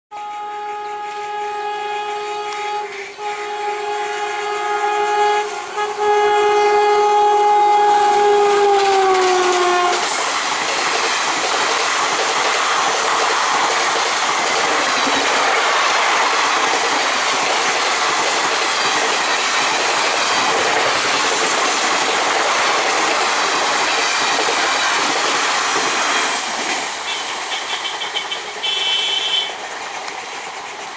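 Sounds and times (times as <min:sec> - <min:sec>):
train horn blast: 0:00.1 - 0:10.3, 0:27.1 - 0:29.6
train wheels rushing on rails: 0:00.2 - 0:30.9
clickety-clack over rail joints: 0:08.1 - 0:30.9.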